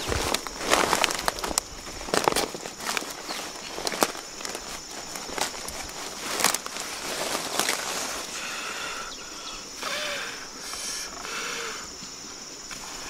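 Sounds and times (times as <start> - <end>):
banana leaf crackling: 0.0 - 9.0
high-pitched insect buzz: 0.0 - 13.0.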